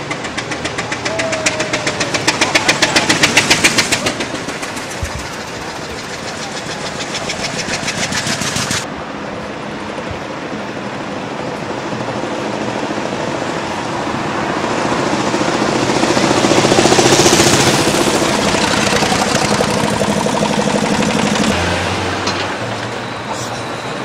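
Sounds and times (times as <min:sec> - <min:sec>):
car engine chugging: 0:00.0 - 0:08.8, 0:15.4 - 0:24.0
road traffic: 0:00.0 - 0:24.0.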